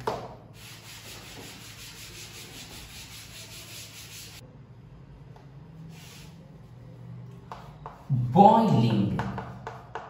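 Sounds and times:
duster wiping chalkboard: 0.6s - 4.4s, 5.9s - 6.4s.

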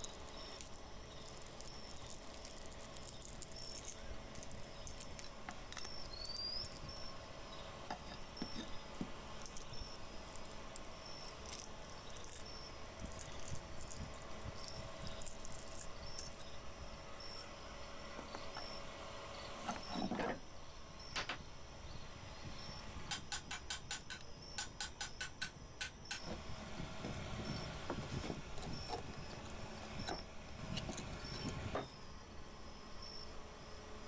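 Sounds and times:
rotten wood cracking and rubbing: 0.0s - 16.9s, 26.4s - 31.8s
cricket chirping: 0.0s - 26.4s, 27.2s - 34.0s
steady low hum: 0.0s - 34.0s.

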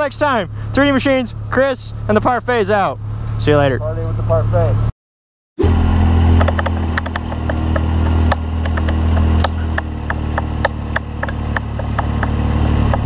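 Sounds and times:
engine idling: 5.7s - 13.0s
sharp clicks and taps: 6.4s - 13.0s.

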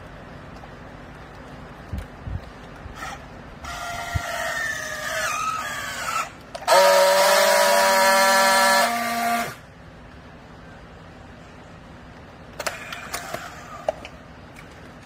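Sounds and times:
baler machine whining: 2.9s - 9.8s.

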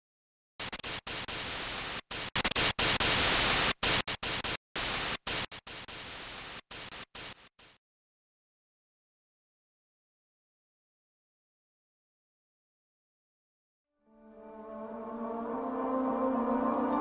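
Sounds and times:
white noise static bursts: 0.6s - 7.8s.

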